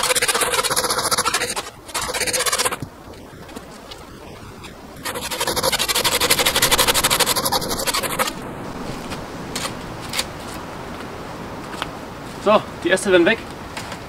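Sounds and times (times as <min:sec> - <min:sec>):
hand saw cutting wood: 0:00.0 - 0:02.8, 0:05.0 - 0:08.4.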